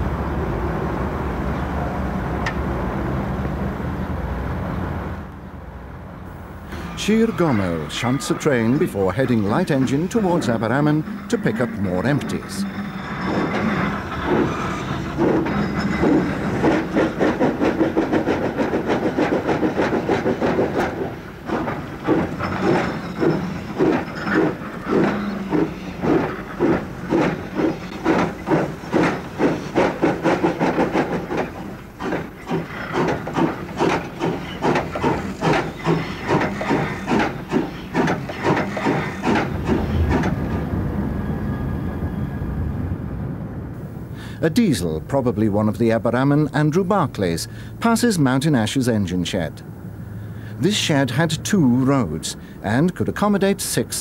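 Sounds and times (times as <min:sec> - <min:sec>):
steam locomotive chuffing: 0:06.3 - 0:41.8.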